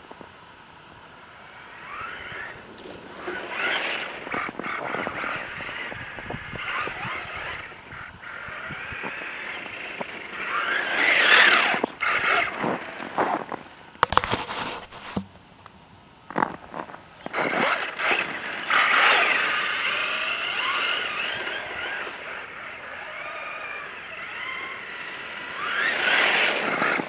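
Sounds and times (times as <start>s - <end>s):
toy car motor whine: 1.4s - 13.5s, 17.2s - 27.0s
tyre noise on snow: 1.4s - 15.2s, 16.3s - 27.0s.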